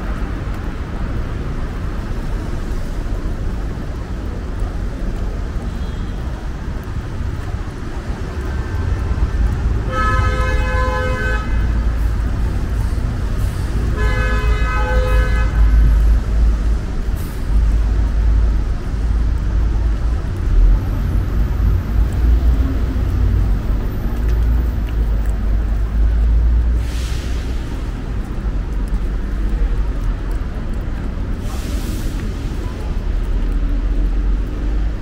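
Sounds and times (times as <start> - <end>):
traffic rumble on wet road: 0.0 - 35.0
car horn: 9.9 - 11.6, 13.9 - 15.7.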